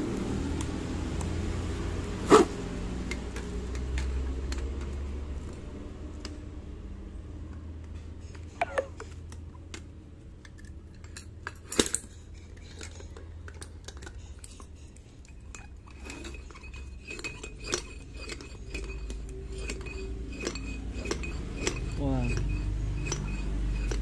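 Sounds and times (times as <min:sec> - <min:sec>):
foot pump clicks and clinks: 0:10.4 - 0:24.0
foot pump clattering: 0:15.2 - 0:24.0.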